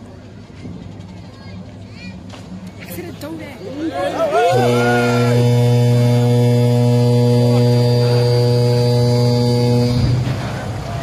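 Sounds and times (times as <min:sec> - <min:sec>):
ship's horn blast: 0:04.2 - 0:11.0.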